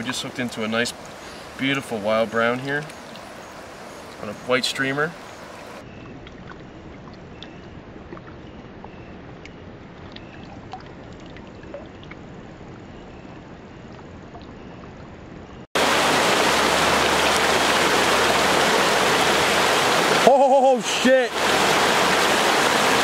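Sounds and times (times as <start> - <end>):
quiet river trickling: 0.0 - 23.0
whitewater rapids rushing: 15.8 - 23.0.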